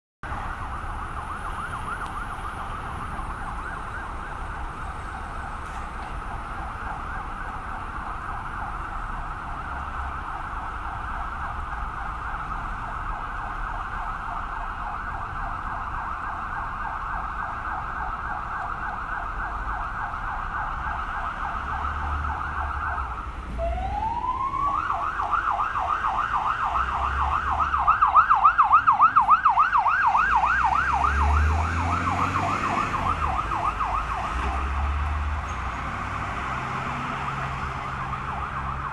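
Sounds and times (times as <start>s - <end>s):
fire engine siren yelping: 0.2s - 38.9s
low traffic rumble: 0.2s - 38.9s.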